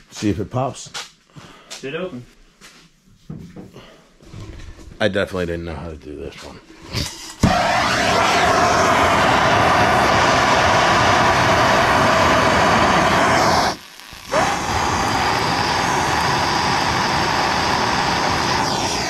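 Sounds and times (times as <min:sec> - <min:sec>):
gas torch hissing: 0:06.9 - 0:19.0.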